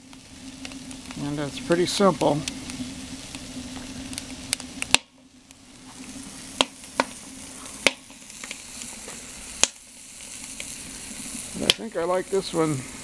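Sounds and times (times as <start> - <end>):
burger sizzling: 0.0 - 13.0
sharp pops: 2.1 - 11.0, 11.6 - 11.9.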